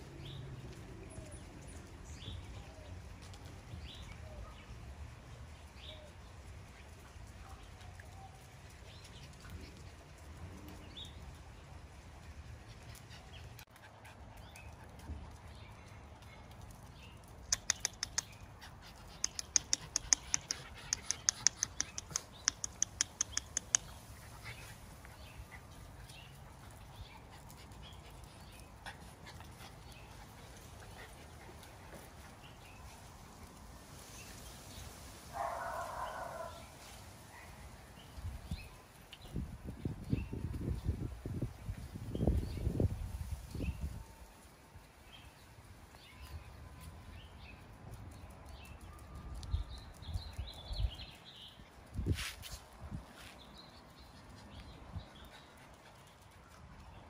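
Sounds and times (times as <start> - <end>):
sharp clicks: 17.4 - 18.4, 19.1 - 24.0
puppy barking: 35.3 - 36.7.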